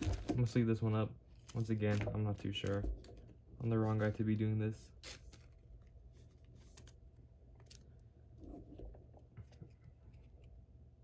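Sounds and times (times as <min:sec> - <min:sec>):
cards rustling into plastic sleeve: 0:01.3 - 0:08.2.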